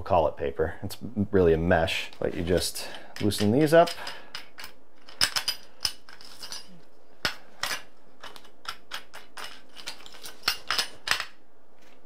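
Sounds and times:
metallic clicks and clinks: 2.8s - 11.4s.

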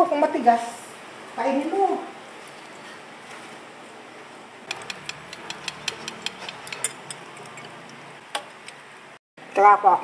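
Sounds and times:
fork clicking against metal strainer: 4.7s - 7.7s.

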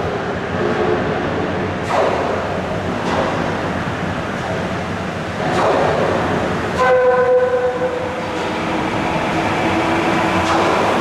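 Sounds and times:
train rumbling in a tunnel: 0.0s - 11.0s
train horn blast: 6.8s - 8.1s.

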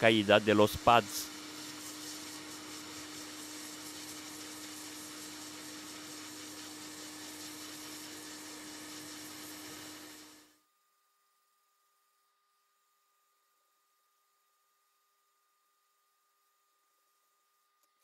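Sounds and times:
hot air station hissing: 0.0s - 10.4s
faint steady hum: 10.1s - 18.0s.

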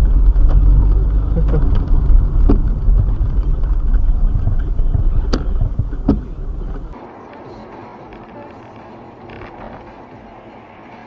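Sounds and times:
car engine and road rumble: 0.0s - 11.0s
sharp knocks: 1.5s - 6.9s.

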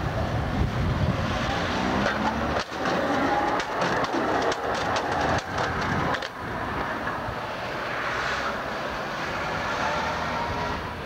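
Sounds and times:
tram wheels clattering on rails: 1.7s - 7.4s.

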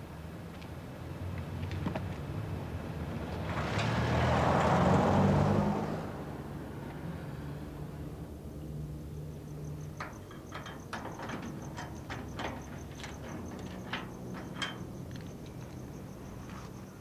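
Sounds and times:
cricket trilling: 9.3s - 17.0s.

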